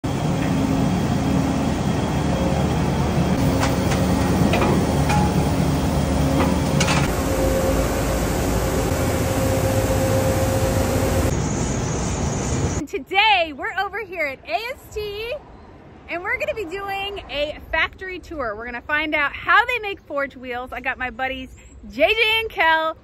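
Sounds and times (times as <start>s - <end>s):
heavy machinery din: 0.0s - 12.8s
metallic clanks and knocks: 3.4s - 7.1s.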